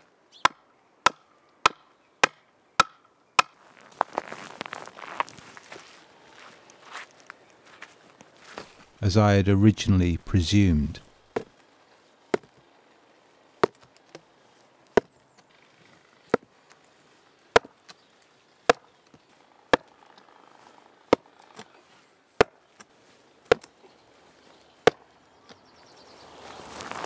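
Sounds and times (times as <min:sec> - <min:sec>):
stone pounding wooden post: 0:13.6 - 0:13.8, 0:17.5 - 0:17.8.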